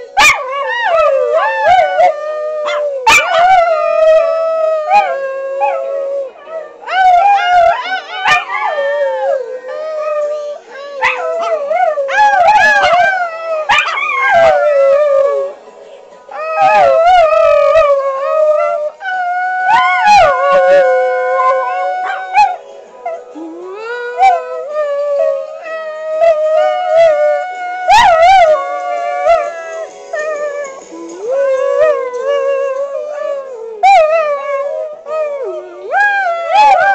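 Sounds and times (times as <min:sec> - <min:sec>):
small dogs howling: 0:00.2 - 0:15.6, 0:16.4 - 0:23.2, 0:23.8 - 0:36.9
music from a laptop: 0:27.3 - 0:31.2.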